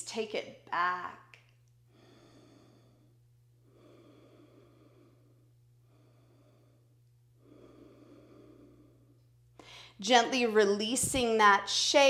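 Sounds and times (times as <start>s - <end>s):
steady low hum: 0.0s - 12.0s
person breathing slowly: 1.9s - 10.0s.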